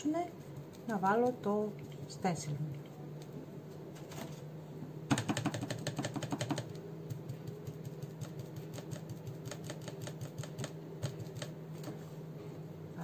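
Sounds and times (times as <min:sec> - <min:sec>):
stencil brush tapping on glass: 0:05.1 - 0:11.6.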